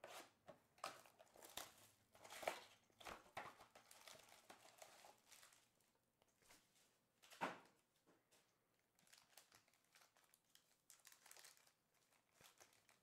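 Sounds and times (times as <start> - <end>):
packaging crinkling and scraping: 0.0 - 5.7, 9.0 - 13.0
foil packs rustling: 0.9 - 5.7, 9.0 - 13.0.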